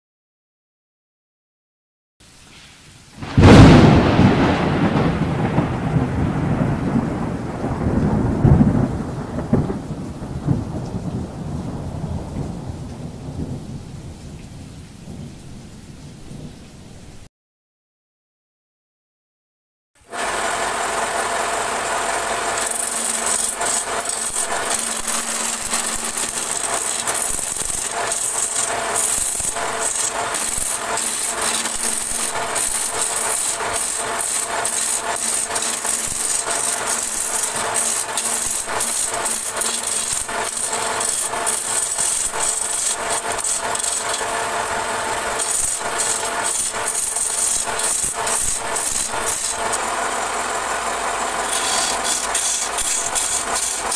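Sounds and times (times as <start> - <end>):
wood lathe humming: 20.0 - 53.9
turning tool scraping wood: 20.1 - 53.9.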